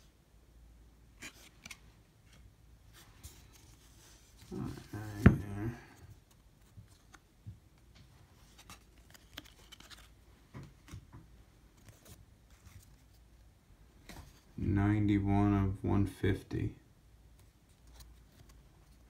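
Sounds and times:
trading cards rustling: 3.2s - 7.3s, 8.3s - 10.2s.

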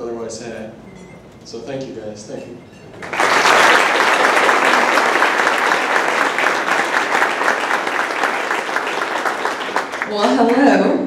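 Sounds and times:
audience applauding: 3.0s - 10.7s.

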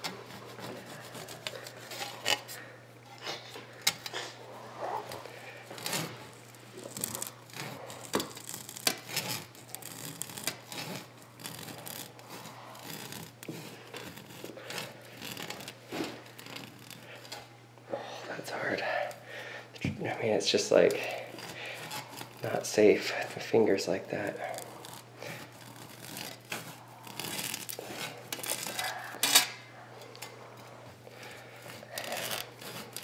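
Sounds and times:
hand saw rasping through rubber: 0.0s - 2.5s, 5.2s - 17.3s, 20.8s - 29.3s, 31.2s - 33.0s.

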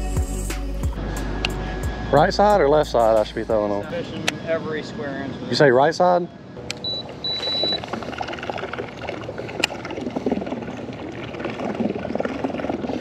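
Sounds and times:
water gurgling and splashing: 7.0s - 13.0s.

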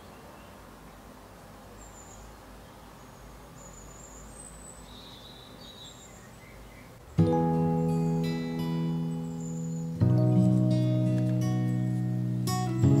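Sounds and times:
faint background noise: 0.0s - 13.0s
high bird chirps: 3.6s - 12.2s.

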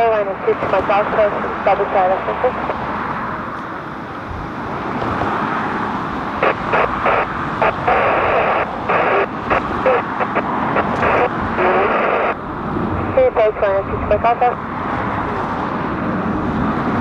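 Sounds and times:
radio scanner static bursts: 0.0s - 2.8s, 6.3s - 12.4s, 13.0s - 14.6s
jet airliner climbing overhead: 0.0s - 17.0s.

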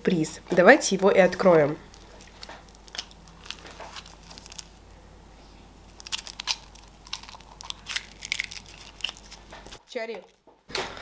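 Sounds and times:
foil wrapper crinkling: 1.9s - 4.8s, 5.9s - 10.4s.

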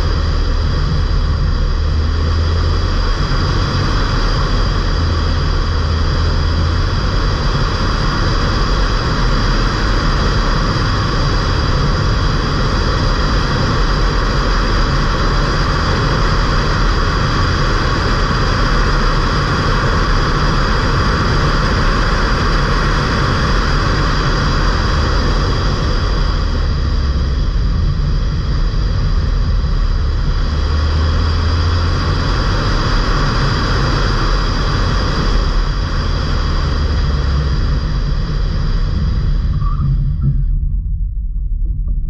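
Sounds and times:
car engine driving: 0.0s - 42.0s
deep engine rumble: 0.0s - 42.0s.

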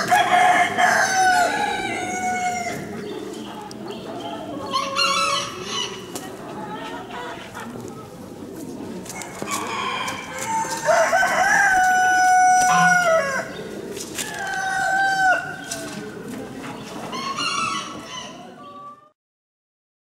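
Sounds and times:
rooster crowing: 0.0s - 2.8s, 9.3s - 13.5s, 14.3s - 15.6s
birds clucking: 0.0s - 19.1s.

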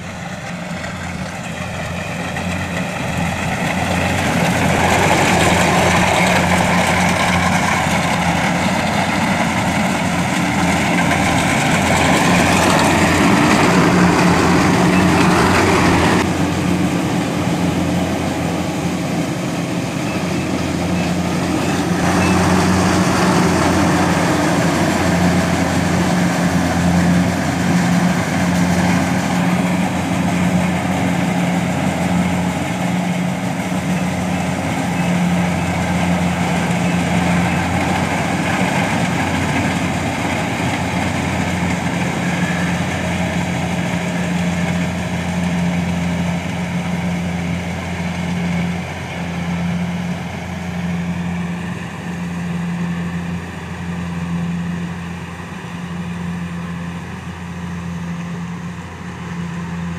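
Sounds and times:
combine harvester engine hum: 0.0s - 59.9s
machinery rattle and whir: 0.0s - 59.9s.

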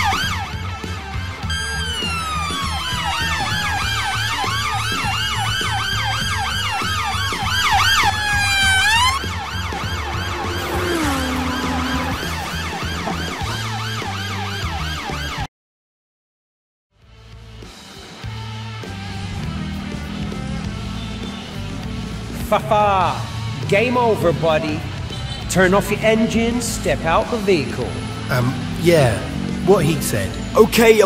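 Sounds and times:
police sirens wailing and yelping: 0.0s - 15.5s
pulsing bass background music: 0.0s - 15.5s, 17.0s - 31.0s.

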